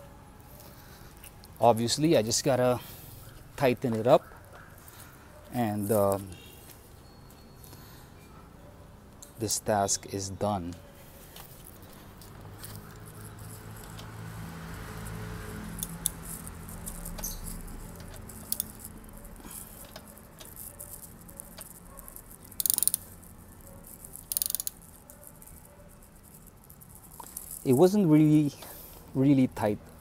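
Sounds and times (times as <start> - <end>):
ratchet wrench clicking: 11.5 - 29.1
tool handling clicks: 15.7 - 23.2, 23.9 - 25.0.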